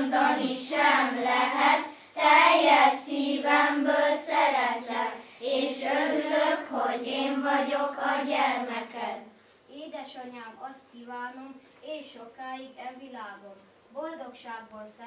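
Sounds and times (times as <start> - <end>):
children singing in unison: 0.0 - 9.0.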